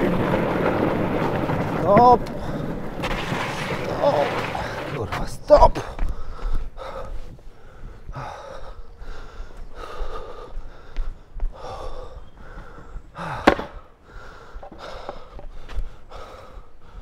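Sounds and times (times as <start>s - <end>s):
person panting heavily: 5.9s - 17.0s.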